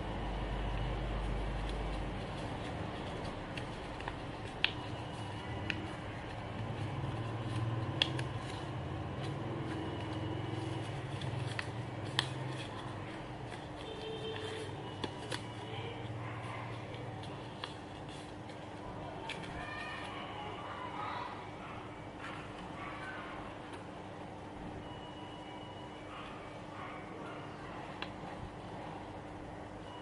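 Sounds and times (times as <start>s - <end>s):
paper crinkling as it is folded: 0.6s - 20.5s.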